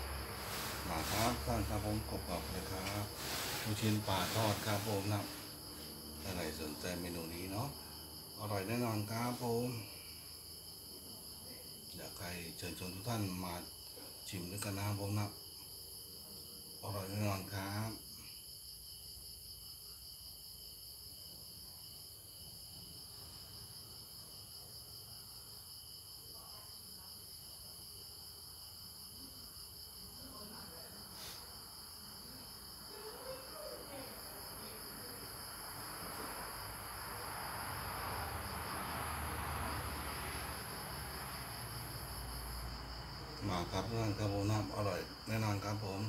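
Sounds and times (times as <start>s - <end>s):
broad rushing noise: 0.0s - 5.6s
insects trilling: 0.0s - 46.0s.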